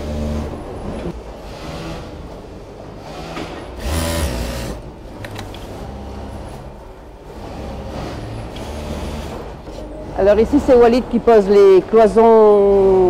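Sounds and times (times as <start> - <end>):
sewing machine stitching bursts: 3.0 - 4.8, 5.5 - 9.6
sewing machine motor hum: 3.0 - 9.6.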